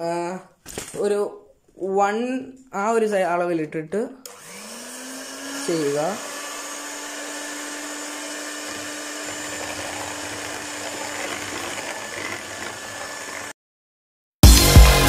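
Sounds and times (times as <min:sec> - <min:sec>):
electric mixer whipping: 0:04.3 - 0:13.6.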